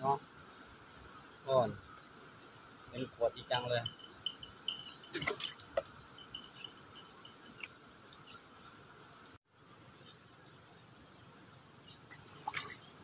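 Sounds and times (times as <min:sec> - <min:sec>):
insects chirping: 0:00.0 - 0:13.0
water drips and splashes: 0:05.0 - 0:05.9, 0:12.0 - 0:13.0.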